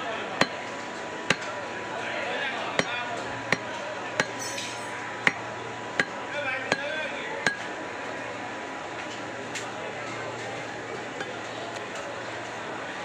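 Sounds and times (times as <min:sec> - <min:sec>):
knife chopping on wooden block: 0:01.3 - 0:01.5.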